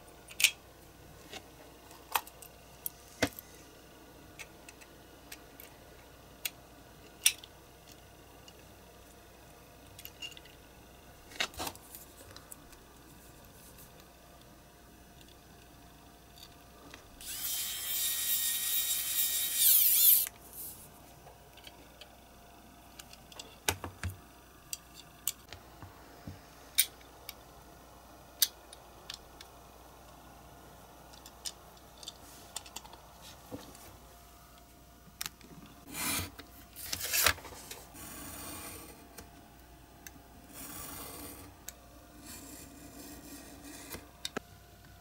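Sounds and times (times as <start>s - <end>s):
electric screwdriver whining: 17.2s - 20.3s
small metal parts clicking: 17.2s - 20.3s
craft knife scraping along ruler: 17.2s - 20.8s, 35.9s - 37.3s, 37.9s - 39.0s, 40.5s - 41.6s, 42.2s - 44.0s.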